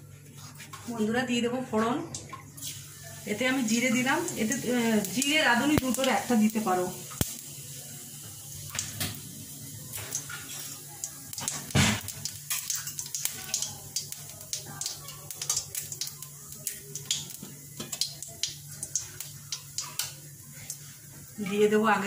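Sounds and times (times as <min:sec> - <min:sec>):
seeds crackling in hot oil: 0:02.1 - 0:22.0.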